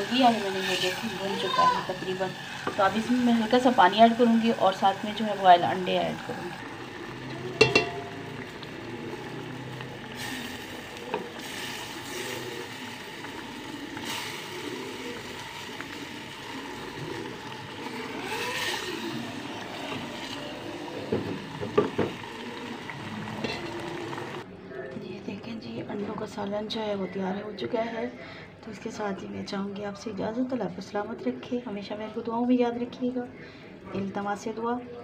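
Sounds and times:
gas burner hissing: 0:00.0 - 0:24.4.

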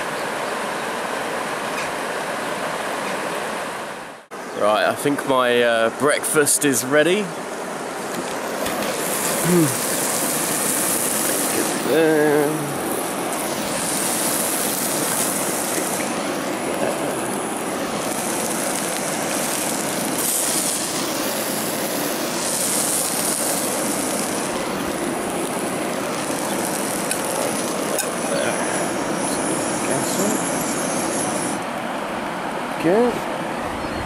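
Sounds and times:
bacon sizzling in frying pan: 0:08.0 - 0:31.6.

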